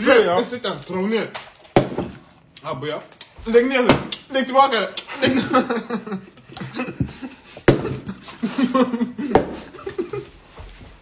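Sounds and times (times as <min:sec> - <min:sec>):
men talking and laughing: 0:04.9 - 0:10.5.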